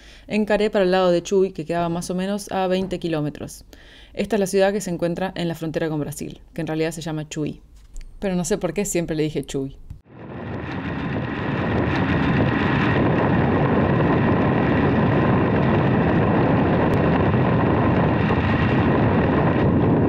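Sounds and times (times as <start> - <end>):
wind rush on microphone: 10.0 - 20.0
motorcycle road and engine noise: 10.1 - 20.0.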